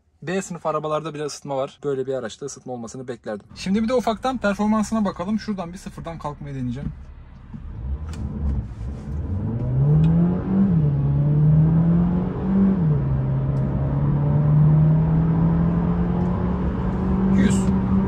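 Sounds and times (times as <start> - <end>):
car engine accelerating hard: 3.6 - 18.0.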